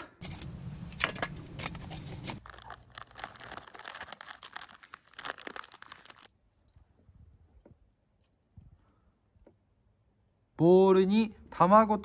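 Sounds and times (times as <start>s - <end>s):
plastic bag rustling: 0.2s - 6.3s.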